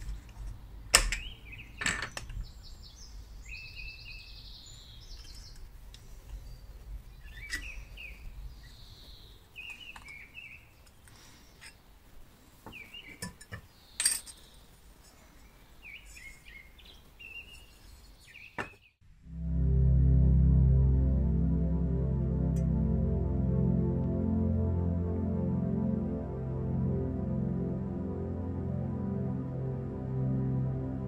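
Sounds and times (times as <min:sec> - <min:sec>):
small birds chirping: 0:01.1 - 0:19.0
metal parts clinking: 0:13.2 - 0:14.4.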